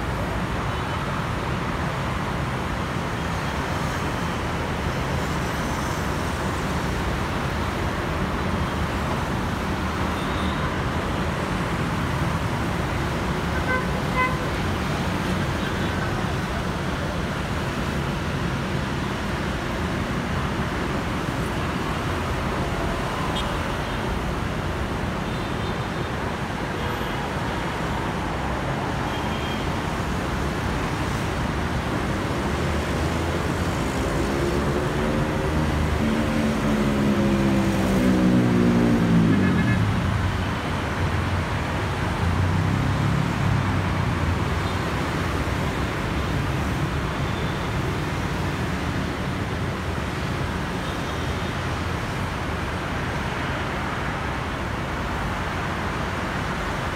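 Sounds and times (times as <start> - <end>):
motorbikes and scooters passing: 32.5 - 40.4.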